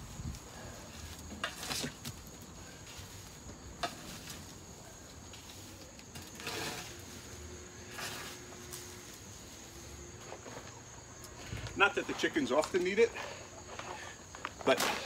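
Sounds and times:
pitchfork scraping and rustling compost: 0.0s - 15.0s.

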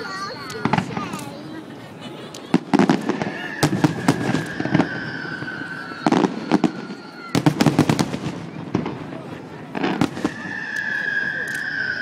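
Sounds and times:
fireworks bursting with sharp bangs: 0.0s - 1.6s, 2.3s - 12.0s
firework whistle falling in pitch: 2.9s - 7.7s, 10.0s - 12.0s.

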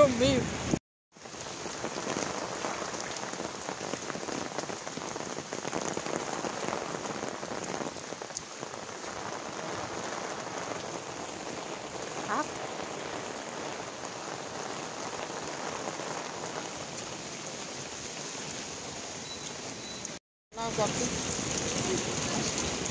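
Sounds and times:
heavy rain on pavement: 0.0s - 22.9s.

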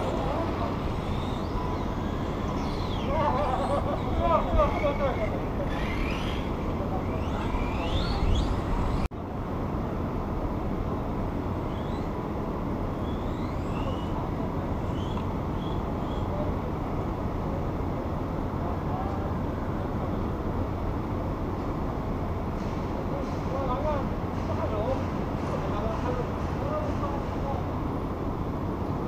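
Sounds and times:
traffic-like background noise: 0.0s - 29.0s
electric toy cars whining: 1.0s - 8.4s.

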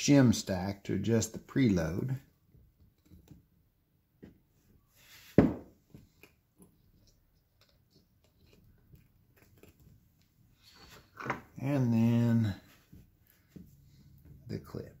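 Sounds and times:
thump: 5.4s - 5.7s.

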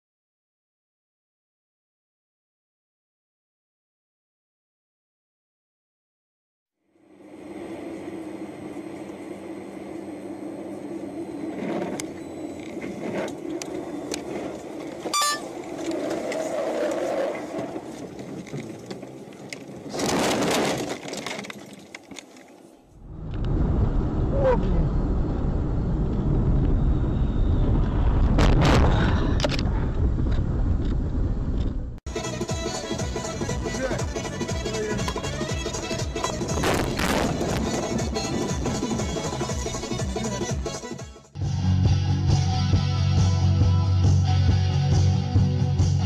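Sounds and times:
low rumbling road noise: 6.8s - 40.8s
vehicle engine and road hum: 6.8s - 40.8s.

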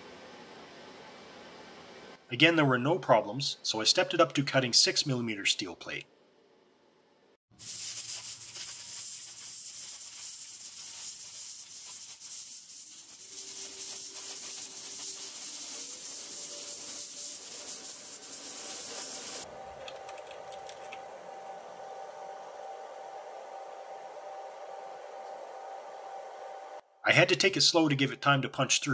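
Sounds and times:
compressed air jet hissing: 7.6s - 19.5s
machine hum with faint tone: 13.4s - 28.2s.

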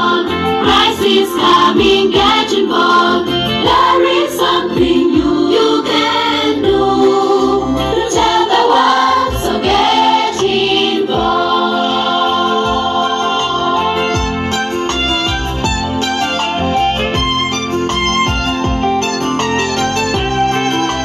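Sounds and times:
choir singing gospel song: 0.0s - 14.5s.

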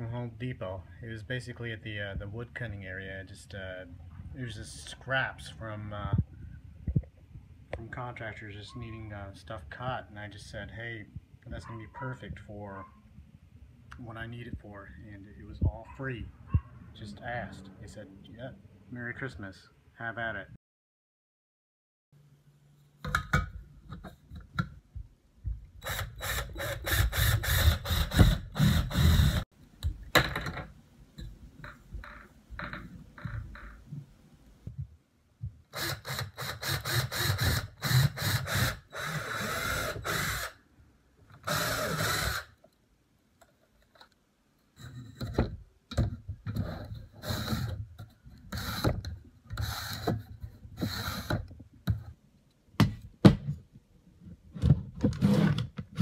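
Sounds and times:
drill-powered saw cutting wood: 25.8s - 29.4s, 35.7s - 40.6s, 41.4s - 42.6s, 47.2s - 47.8s, 48.5s - 48.9s, 49.6s - 50.1s, 50.8s - 51.4s.

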